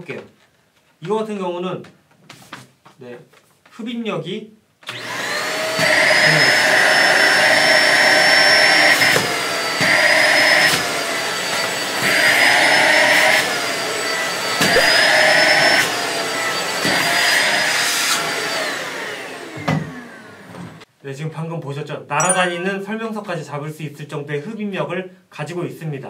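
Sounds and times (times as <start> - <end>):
vacuum motor winding down: 4.9 - 16.5
handheld vacuum cleaner running: 4.9 - 20.8.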